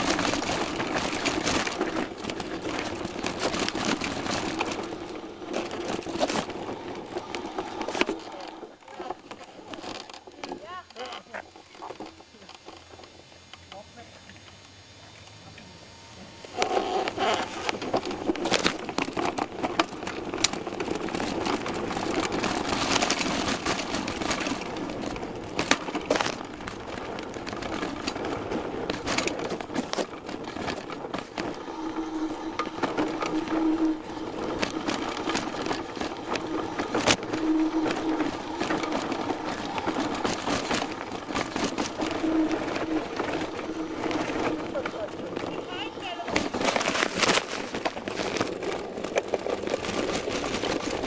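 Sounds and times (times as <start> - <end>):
tyre noise on dirt: 0.0 - 12.9, 16.5 - 51.0
bike frame rattling: 0.0 - 13.0, 16.5 - 51.0.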